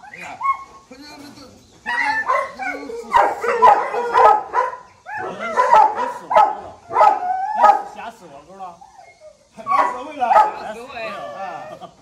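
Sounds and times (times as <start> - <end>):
dog barking: 1.9 - 8.0, 9.7 - 10.8.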